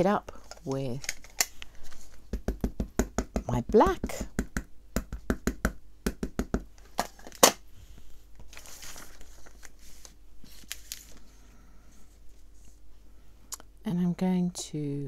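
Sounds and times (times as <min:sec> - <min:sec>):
paper sliding and rustling: 0:08.4 - 0:11.3.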